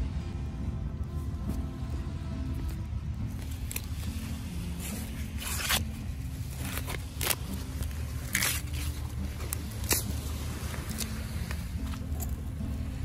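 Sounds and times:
corn husks tearing: 2.6s - 13.0s.

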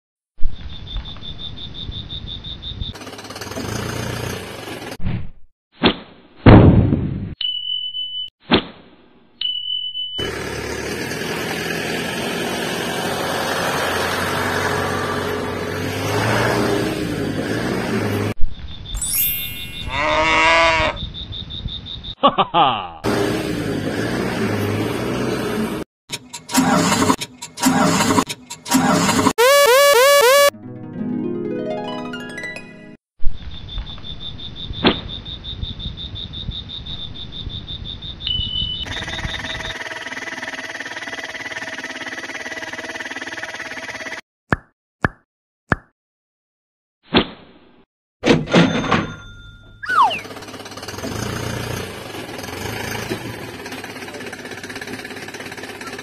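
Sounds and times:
cricket chirping: 0.4s - 3.0s, 18.4s - 22.2s, 33.2s - 41.7s
motor vehicle engine running: 2.9s - 5.0s, 10.2s - 18.4s, 50.2s - 56.0s
short high beep: 29.4s - 30.5s.

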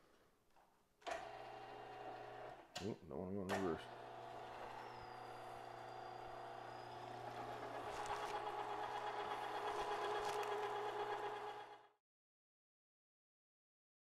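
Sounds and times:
electric meat grinder humming: 1.2s - 2.5s, 3.8s - 12.0s.

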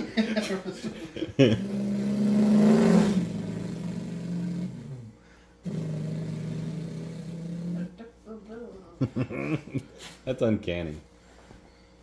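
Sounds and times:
man imitating engine with voice: 1.6s - 4.9s.

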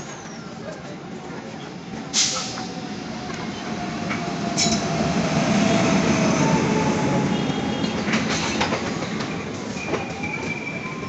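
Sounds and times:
train wheels rumbling on rail: 0.0s - 11.0s
wheels clacking over rail joints: 7.7s - 10.6s.

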